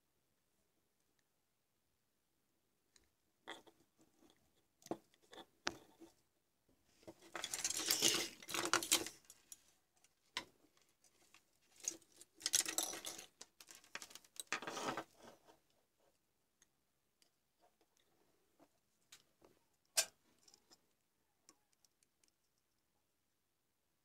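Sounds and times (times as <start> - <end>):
light clicks of small parts: 21.5 - 22.9.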